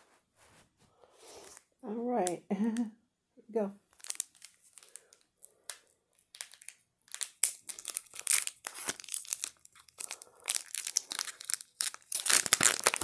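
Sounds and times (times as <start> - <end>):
foil wrapper crinkling and tearing: 3.9 - 13.0.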